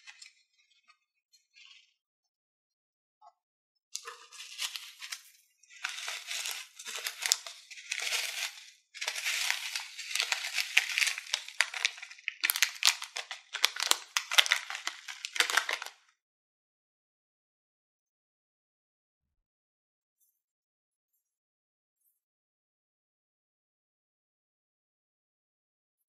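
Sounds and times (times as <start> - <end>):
foam beads pattering into bowl: 4.0 - 16.0
plastic bag crinkling: 4.0 - 16.0.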